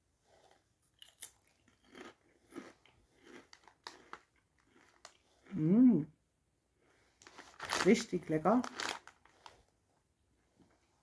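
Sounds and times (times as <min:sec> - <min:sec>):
chewing crunchy chips: 0:00.4 - 0:05.7, 0:07.2 - 0:07.9, 0:08.6 - 0:09.5
person humming: 0:05.5 - 0:06.1.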